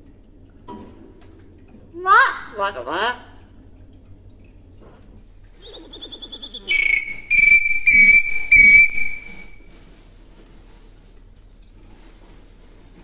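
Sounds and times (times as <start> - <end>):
myna whistled calls: 5.6 - 9.6.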